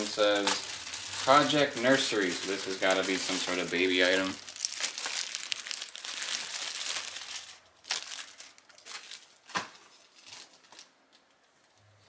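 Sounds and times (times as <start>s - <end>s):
packaging crinkling: 0.0s - 11.2s.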